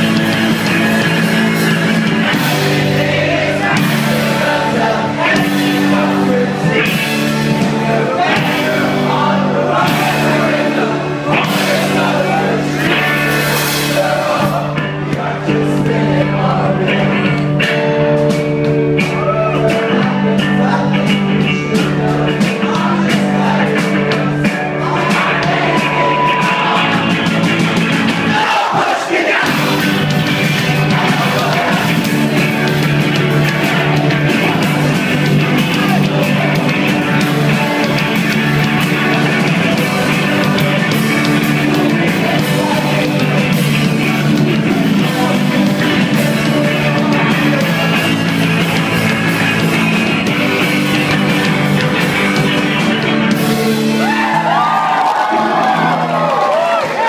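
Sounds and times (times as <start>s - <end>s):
shouted singing: 0.0s - 18.0s, 18.9s - 57.0s
live rock band playing: 0.0s - 57.0s
voices yelling: 24.9s - 27.2s.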